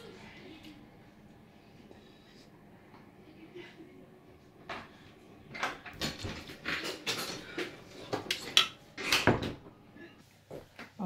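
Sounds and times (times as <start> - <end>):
dishes and utensils clinking: 5.5 - 9.6.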